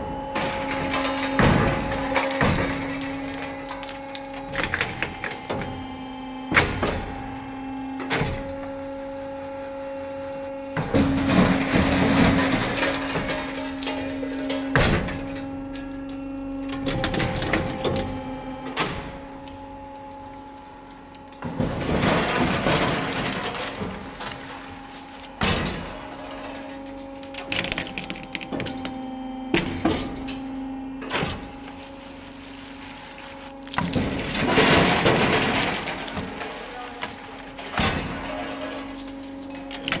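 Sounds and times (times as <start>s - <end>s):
machine hum: 0.0s - 40.0s
nut shells cracking and rattling: 27.4s - 28.9s.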